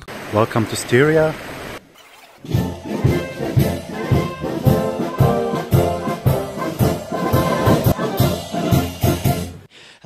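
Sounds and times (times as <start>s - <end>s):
brass band playing: 2.5s - 9.7s.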